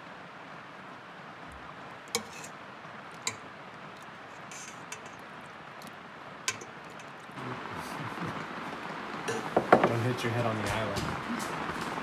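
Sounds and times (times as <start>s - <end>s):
steady background hiss: 0.0s - 12.0s
metal ladle clinking on pot: 2.2s - 2.6s, 3.2s - 3.5s, 4.3s - 5.3s, 6.5s - 7.4s, 9.3s - 9.9s.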